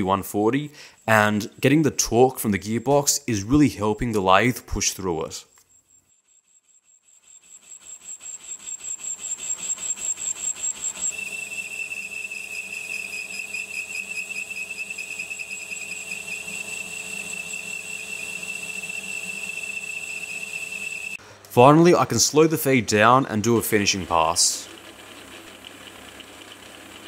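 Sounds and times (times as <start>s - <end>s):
steady high whistle: 5.6s - 21.2s
metal lathe cutting steel: 7.4s - 21.2s, 23.8s - 27.0s.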